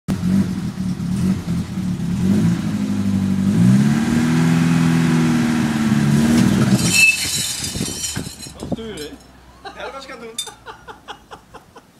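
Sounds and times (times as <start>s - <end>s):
tracked vehicle engine revving: 0.1s - 8.6s
metallic clinks: 6.8s - 9.3s.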